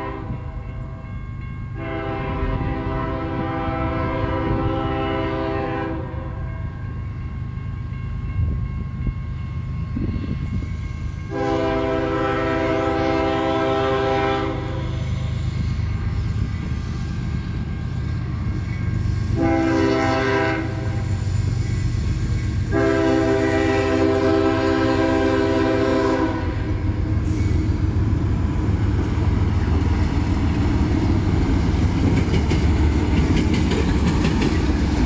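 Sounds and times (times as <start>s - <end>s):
locomotive air horn blasts: 0.0s - 0.6s, 1.8s - 6.5s, 11.3s - 15.0s, 19.3s - 21.2s, 22.6s - 27.7s
train rumble: 0.0s - 35.0s.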